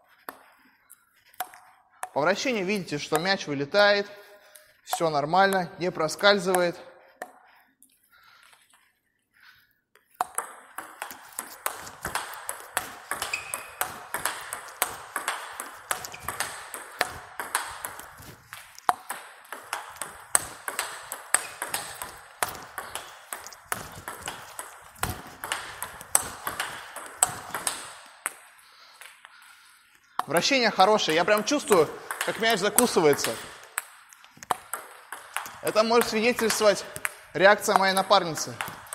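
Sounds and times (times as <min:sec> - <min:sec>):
table tennis ball clicks: 0:10.2 - 0:28.4, 0:31.1 - 0:38.9.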